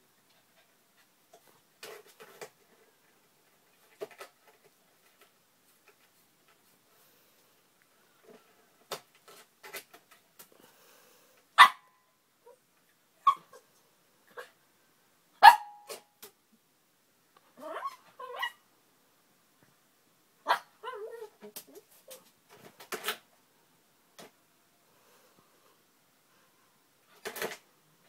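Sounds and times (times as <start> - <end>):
small dog yapping: 15.4 - 16.0, 17.6 - 18.6
dog whining: 17.6 - 18.6.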